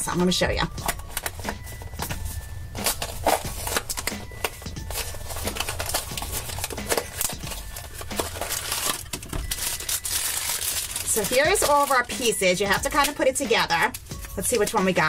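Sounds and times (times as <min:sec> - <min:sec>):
quiet background music: 0:00.0 - 0:15.0
cardboard box being opened: 0:00.8 - 0:11.0.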